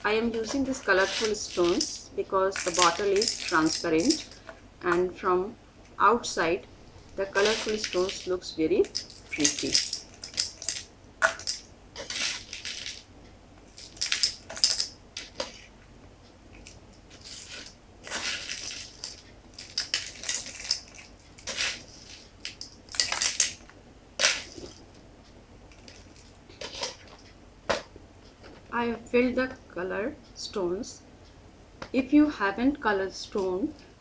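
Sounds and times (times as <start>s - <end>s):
stones rattling against glass: 1.0s - 4.4s, 7.3s - 13.0s, 13.8s - 15.5s, 17.2s - 23.6s.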